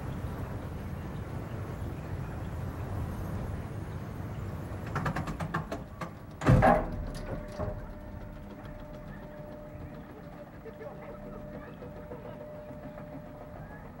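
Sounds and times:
roller coaster rumble: 0:00.0 - 0:14.0
faint steady hum: 0:05.8 - 0:14.0
loud clunk of lift chain: 0:06.4 - 0:08.1.

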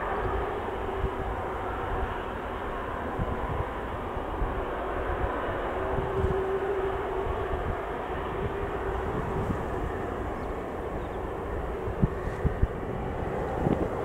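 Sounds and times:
jet engines running: 0:00.0 - 0:14.0.

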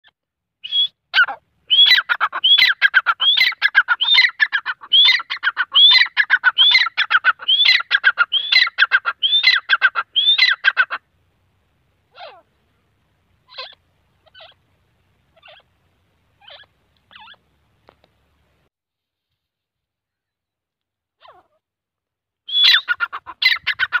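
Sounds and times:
francolin calling: 0:00.6 - 0:11.1, 0:12.1 - 0:12.6, 0:13.4 - 0:14.7, 0:15.3 - 0:15.8, 0:16.4 - 0:17.6, 0:22.5 - 0:24.0.

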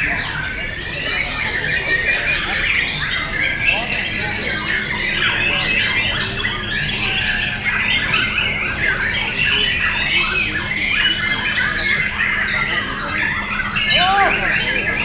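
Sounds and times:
magpie-robin singing: 0:00.0 - 0:15.0
songbirds chorus: 0:00.0 - 0:15.0.

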